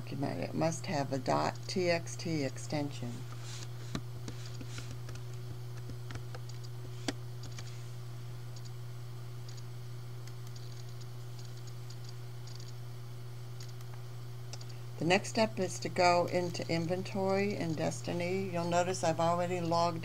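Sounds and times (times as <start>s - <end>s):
keyboard typing: 5.0s - 6.7s, 10.2s - 12.8s.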